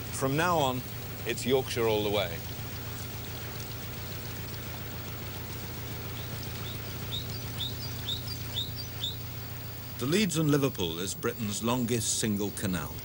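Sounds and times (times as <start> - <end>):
boat engine throbbing: 0.0 - 13.0
water noise: 0.0 - 13.0
bird calling falling note: 6.1 - 9.2.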